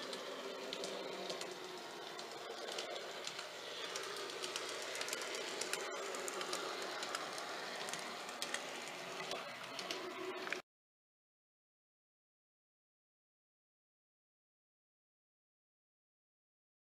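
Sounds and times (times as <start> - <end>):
model train running: 0.0 - 10.6
wheels clicking on rails: 0.0 - 10.6.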